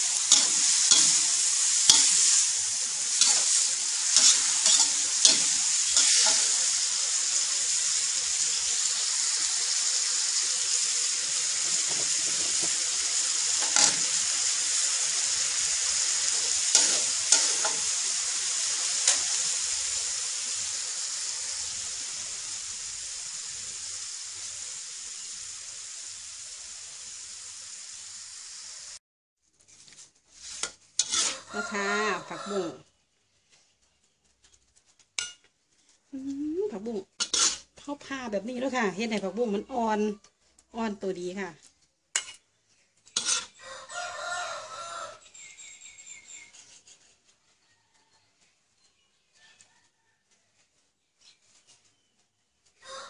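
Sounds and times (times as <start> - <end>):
metal spatula scraping a pan: 0.0 - 8.9, 11.4 - 20.2, 29.6 - 32.7, 35.2 - 35.9, 37.2 - 37.9, 42.1 - 42.4, 43.0 - 43.6, 46.2 - 47.4
food sizzling in a wok: 0.0 - 53.0.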